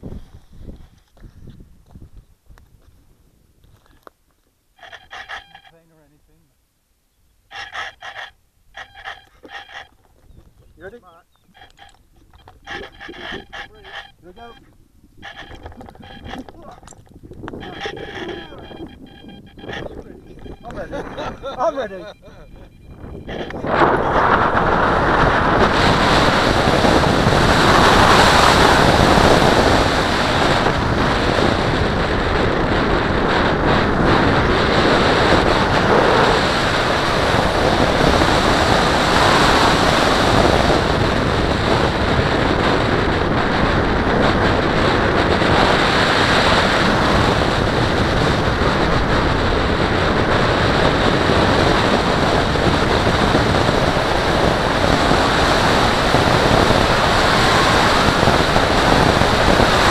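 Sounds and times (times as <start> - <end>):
wind rushing over microphone: 0.0 - 4.0, 4.8 - 5.7, 7.5 - 59.9.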